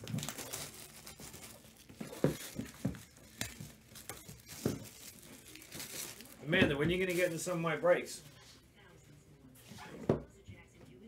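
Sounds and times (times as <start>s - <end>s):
packaging tearing and crinkling: 0.0s - 6.4s.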